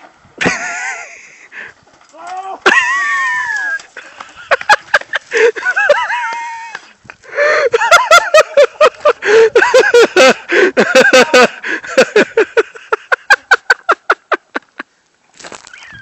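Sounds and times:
person laughing hard: 0.4 - 1.5, 2.6 - 14.9.

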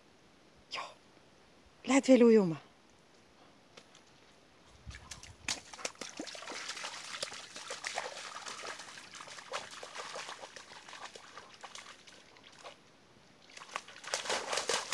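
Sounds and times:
dog splashing through water: 4.9 - 12.8, 13.4 - 14.9.

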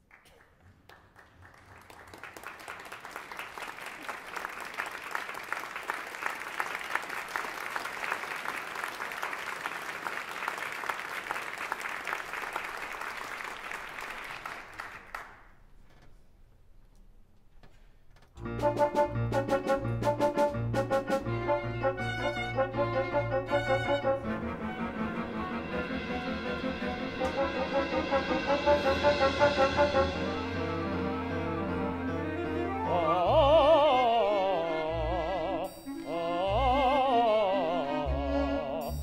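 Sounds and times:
audience applauding: 0.0 - 15.5.

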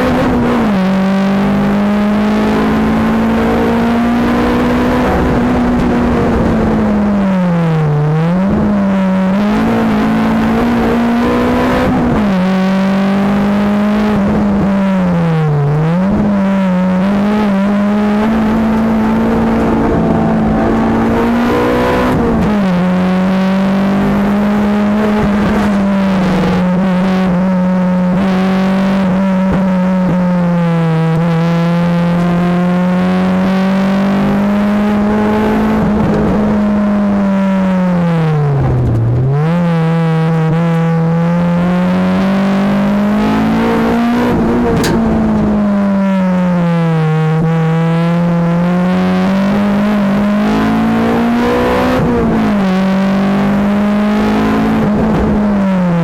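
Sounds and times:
car engine revving high: 0.0 - 56.0.

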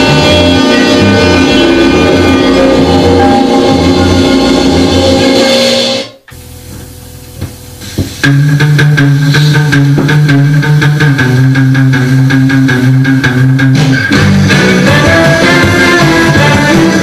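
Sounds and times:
guitar over bass line: 0.0 - 17.0
rock and roll record: 0.0 - 17.0
low hiss: 6.2 - 13.1.

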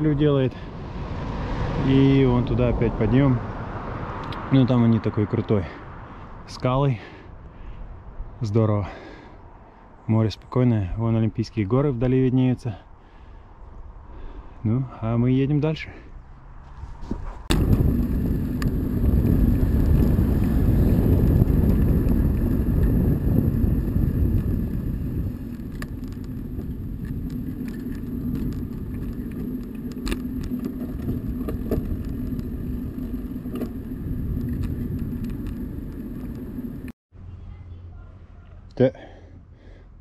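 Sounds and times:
wind rushing over microphone: 0.0 - 6.7, 16.3 - 37.0
bicycle tyre noise: 16.4 - 36.9.

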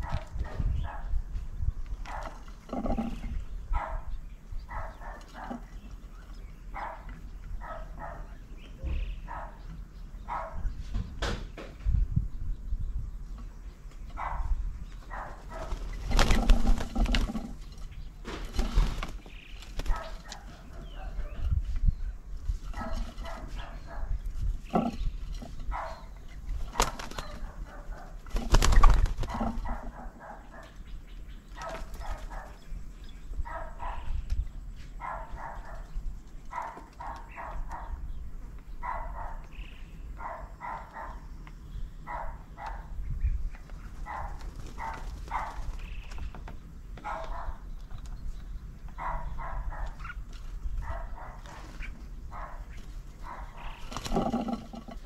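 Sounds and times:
dove wings flapping: 15.5 - 20.3, 26.5 - 29.9, 44.4 - 46.0, 53.8 - 54.8.

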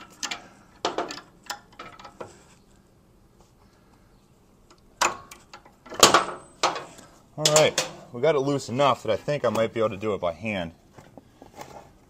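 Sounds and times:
metallic clank: 5.0 - 8.1.

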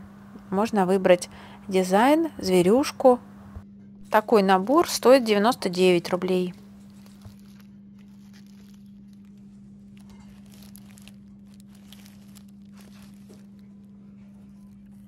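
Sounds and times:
steady low hum: 0.0 - 15.0
plastic packaging crinkling: 4.6 - 15.0.

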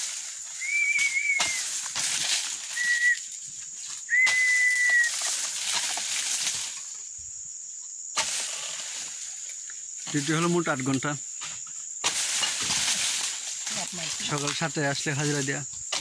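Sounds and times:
blade scraping palm fronds: 0.0 - 3.1, 8.2 - 9.4, 12.0 - 16.0
high whistling tones: 0.5 - 1.8, 2.6 - 3.3, 4.0 - 5.4.

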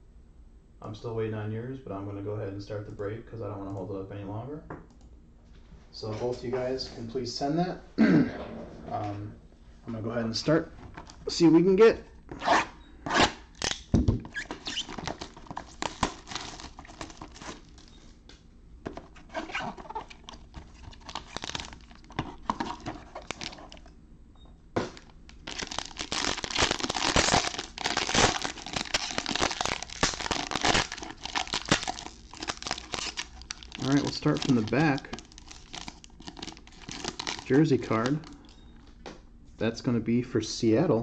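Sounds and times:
shrink wrap tearing and peeling: 13.2 - 17.9, 19.1 - 23.9, 25.0 - 38.3
foil card pack crinkling: 13.6 - 17.9, 18.9 - 23.9, 24.8 - 38.5.

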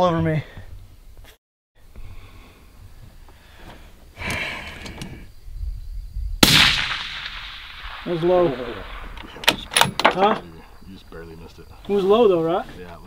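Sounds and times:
faint outdoor background: 0.0 - 13.0
rustle: 0.0 - 13.0
suppressed rifle shot: 6.4 - 10.1.

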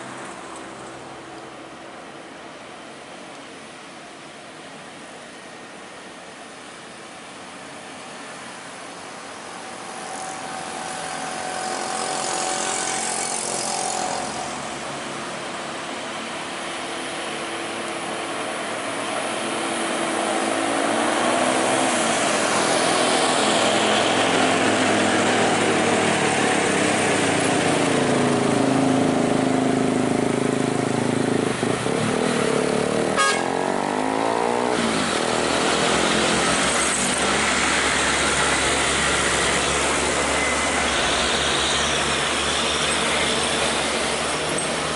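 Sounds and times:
trucks' diesel engines labouring: 0.0 - 44.9
cars passing: 7.8 - 44.9
motorcycles passing: 9.3 - 15.5, 18.8 - 44.9.

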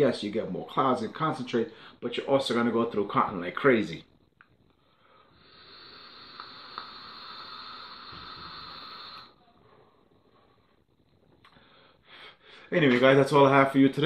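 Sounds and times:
air drawn through vape atomizer: 4.4 - 9.4.

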